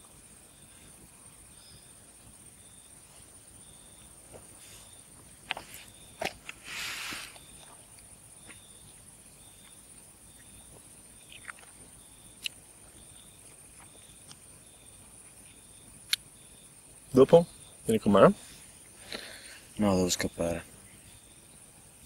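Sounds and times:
crickets chirping: 0.0 - 22.0
brief hiss: 6.5 - 7.5.

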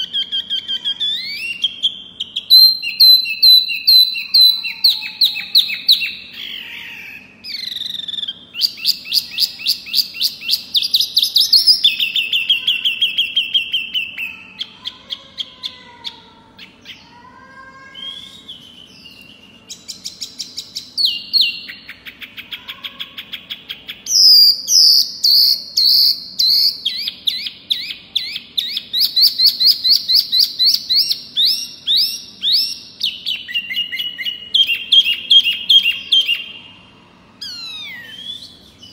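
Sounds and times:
songbird trilling: 0.0 - 15.8
bird whistles: 37.4 - 38.9.

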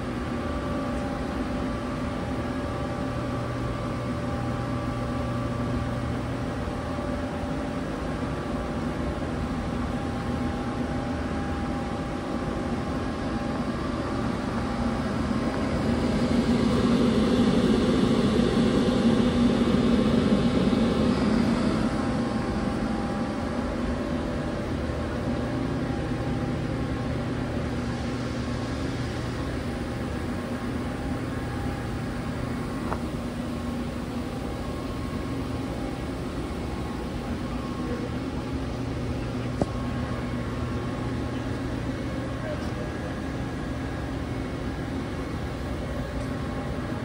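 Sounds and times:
lathe machine hum: 0.0 - 47.0
steady machine tones: 0.0 - 47.0.

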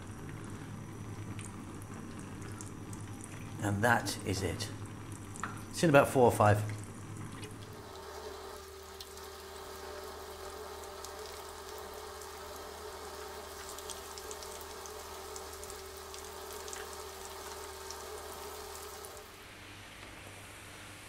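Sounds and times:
steady low hum: 0.0 - 21.0
potatoes sizzling in hot oil: 7.6 - 19.3.

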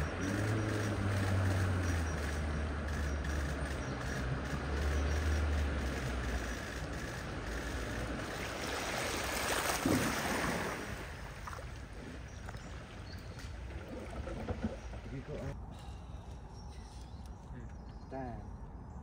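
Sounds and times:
floodwater rushing and splashing: 7.2 - 15.6.

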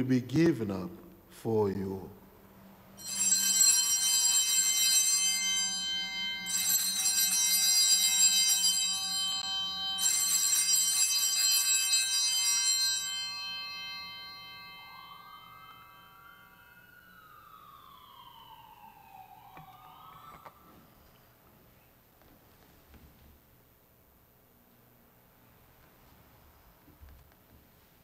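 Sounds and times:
faint rising siren: 2.6 - 21.6
altar bells ringing: 3.0 - 17.4.

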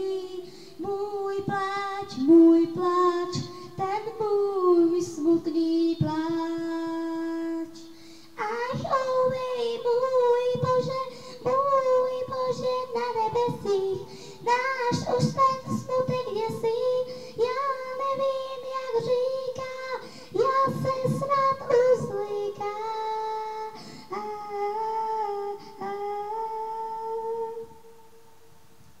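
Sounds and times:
girl singing into a microphone: 0.0 - 29.0.

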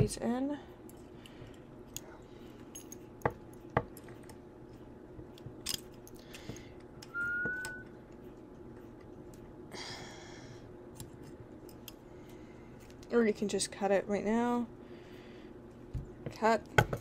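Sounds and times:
low steady hum: 0.0 - 17.0
pliers clicking on wire: 5.3 - 7.2
brief high steady tone: 7.2 - 7.9.

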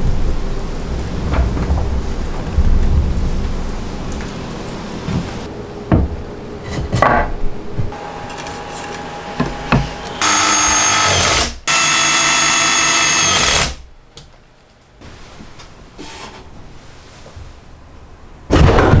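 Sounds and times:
power drill into wood: 10.2 - 13.8.

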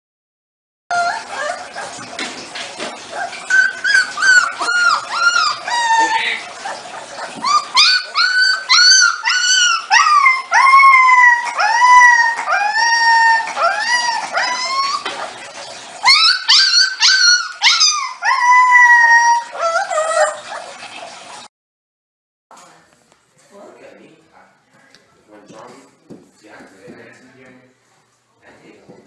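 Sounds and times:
puppy howling: 0.9 - 2.0, 3.1 - 20.8.

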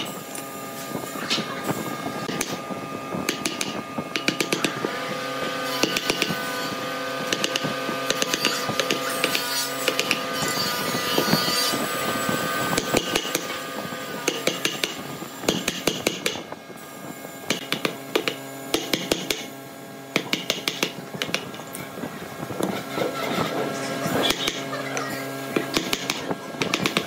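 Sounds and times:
hammer striking wood chisel: 3.3 - 4.8, 5.8 - 6.4, 7.3 - 10.2, 14.2 - 16.4, 17.5 - 19.5, 20.2 - 21.5, 25.6 - 27.0.

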